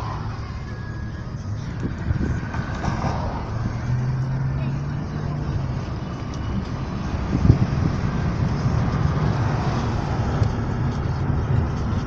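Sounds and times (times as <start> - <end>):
car road noise rumble: 0.0 - 12.0
thump: 2.5 - 3.4.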